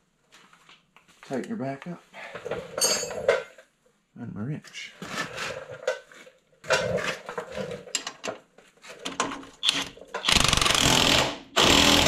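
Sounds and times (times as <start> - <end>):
cordless power tool running: 10.3 - 12.0.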